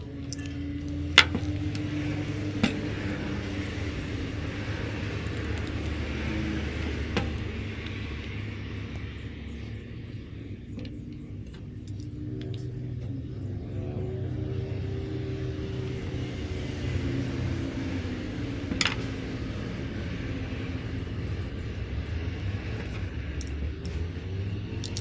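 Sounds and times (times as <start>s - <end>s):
low engine rumble: 0.0s - 25.0s
sharp metal clicks: 24.8s - 25.0s.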